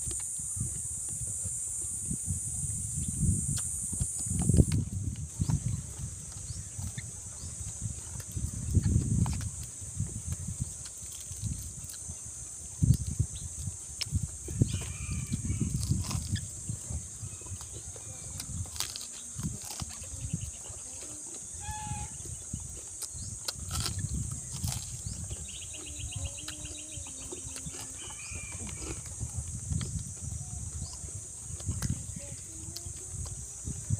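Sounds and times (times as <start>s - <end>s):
high insect drone: 0.0s - 33.9s
chewing and crunching: 3.2s - 33.9s
bird calls: 20.2s - 22.5s.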